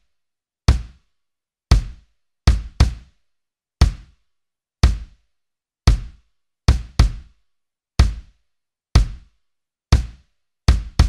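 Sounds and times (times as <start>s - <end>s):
kick drum hits: 0.7s - 1.0s, 1.7s - 3.0s, 3.8s - 4.1s, 4.8s - 5.2s, 5.9s - 7.3s, 8.0s - 8.3s, 9.0s - 9.3s, 10.0s - 11.0s.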